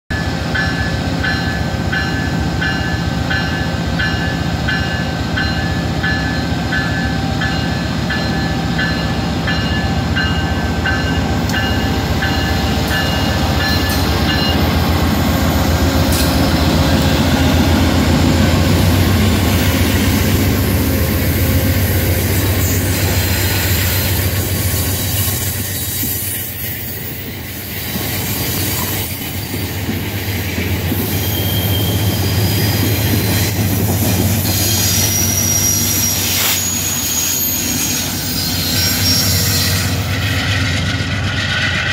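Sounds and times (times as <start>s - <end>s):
locomotive bell ringing: 0.1s - 17.6s
diesel locomotive engine drone: 0.1s - 41.9s
train wheels on rails: 0.1s - 41.9s.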